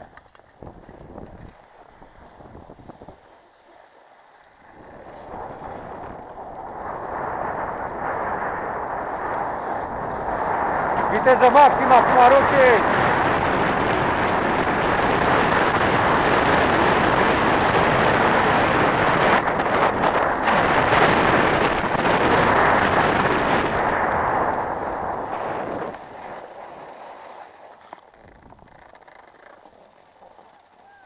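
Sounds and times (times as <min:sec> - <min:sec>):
wind buffeting microphone: 0:00.0 - 0:03.4, 0:04.6 - 0:26.3, 0:28.1 - 0:29.0
skis hissing over snow: 0:15.8 - 0:28.1.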